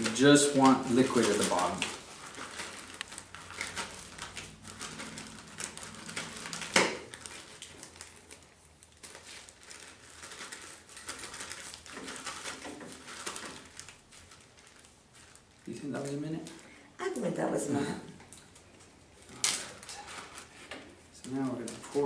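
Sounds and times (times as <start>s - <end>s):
plastic bag crinkling and squishing: 0.0s - 16.8s, 17.4s - 22.0s.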